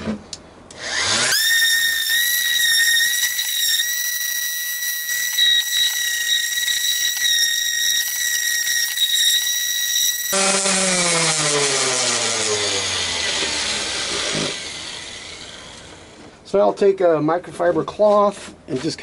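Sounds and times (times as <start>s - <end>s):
sander motor whining: 0.7s - 16.4s.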